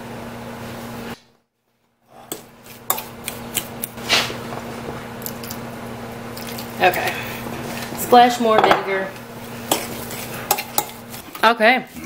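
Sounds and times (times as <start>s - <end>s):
metal spoon scraping ceramic bowl: 9.7s - 11.4s.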